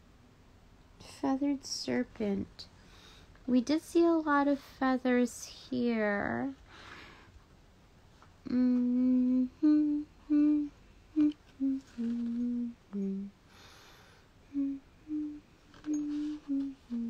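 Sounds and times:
woman humming a slow tune: 0:08.4 - 0:13.4, 0:14.5 - 0:17.0.

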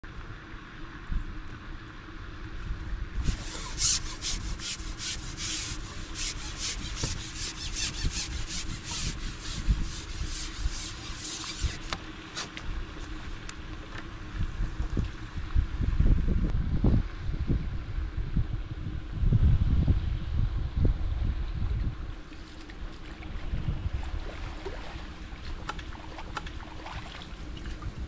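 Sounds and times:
low background rumble: 0:00.0 - 0:28.0
quick rasping rub strokes: 0:03.2 - 0:12.6.

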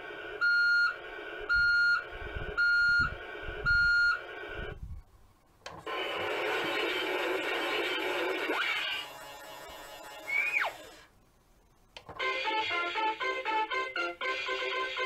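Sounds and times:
rough electronic noise: 0:05.8 - 0:12.0
noisy electronic sound effect: 0:05.9 - 0:11.1.

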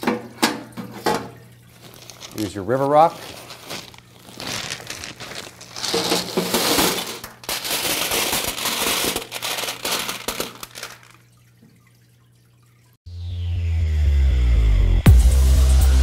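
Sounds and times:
stones clattering into metal tray: 0:03.3 - 0:11.2.

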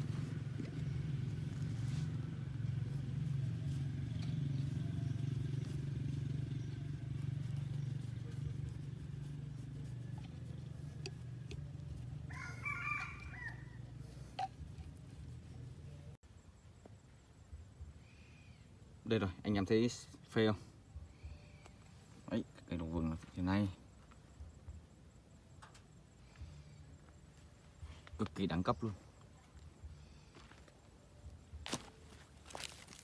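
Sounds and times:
rooster crowing: 0:12.0 - 0:14.1.

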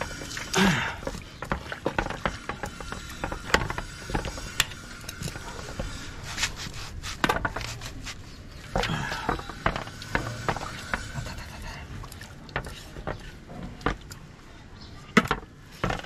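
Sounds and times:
faint steady background noise: 0:00.0 - 0:16.0
clicks and knocks of handling: 0:15.1 - 0:16.0.

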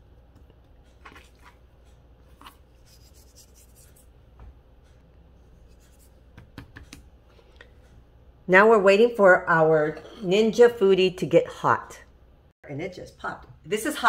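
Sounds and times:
hands rubbing meat: 0:02.3 - 0:04.1.

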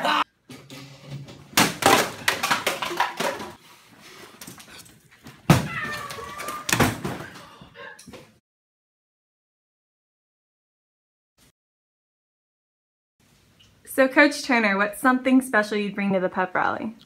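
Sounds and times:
young people wailing and crying out: 0:00.0 - 0:00.2.

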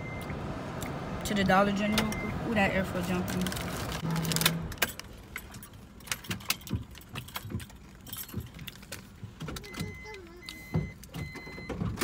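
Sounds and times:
car keys jangling: 0:04.2 - 0:12.0.

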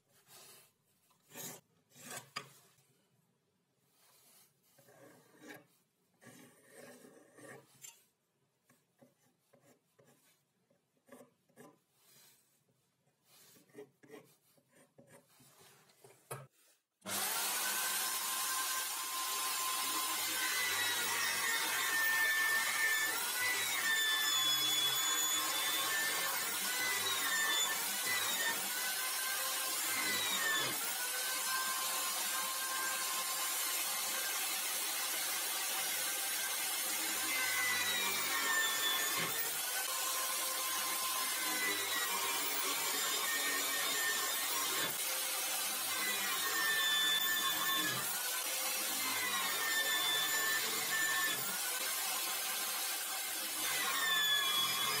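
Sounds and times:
scribe scratching wood: 0:00.3 - 0:02.6, 0:03.9 - 0:08.0, 0:08.6 - 0:18.7
electric drill boring into wood: 0:17.0 - 0:55.0.

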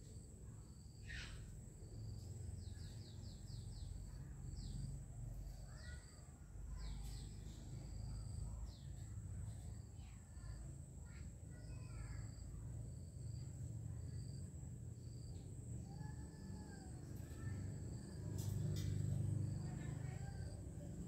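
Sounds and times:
small birds chirping: 0:00.6 - 0:13.4
low outdoor rumble: 0:01.5 - 0:21.0.

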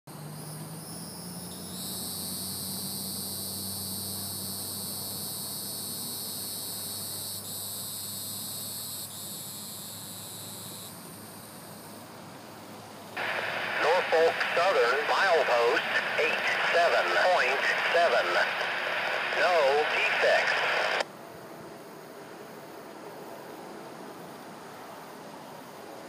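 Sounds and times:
insects buzzing: 0:00.2 - 0:25.8
faint low hum: 0:13.2 - 0:21.0.

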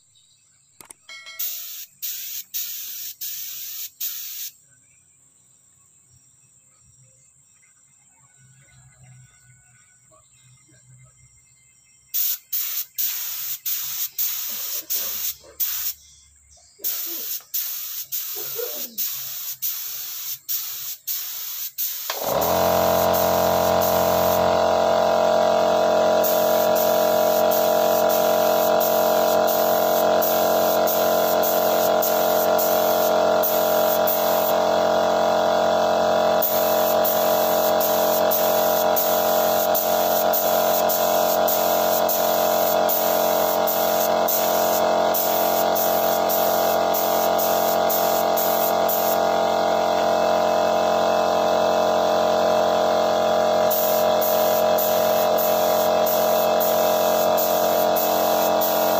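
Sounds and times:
spray gun hissing in bursts: 0:01.4 - 0:04.5, 0:12.1 - 0:16.0, 0:16.8 - 0:58.9
air compressor humming: 0:12.2 - 0:15.9, 0:16.8 - 0:58.9.

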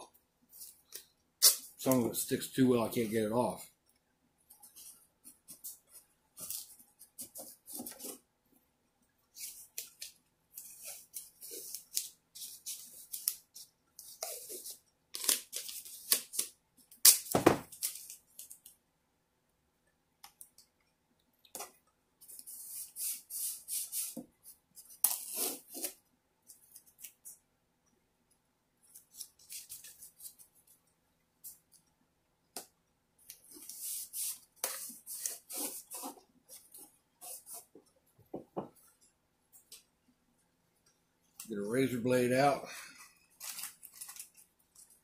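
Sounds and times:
masking tape unrolling and tearing: 0:01.4 - 0:01.8, 0:09.4 - 0:18.5, 0:25.0 - 0:26.0, 0:33.6 - 0:36.2, 0:43.4 - 0:44.4.

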